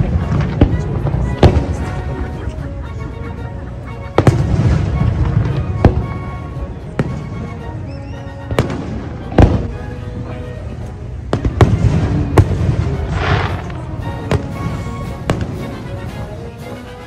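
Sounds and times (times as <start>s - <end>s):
fireworks booming: 0.0s - 2.4s, 4.2s - 7.6s, 8.5s - 10.4s, 11.3s - 16.1s
fireworks crackling hiss: 0.0s - 3.0s, 3.7s - 17.0s
music: 0.0s - 17.0s.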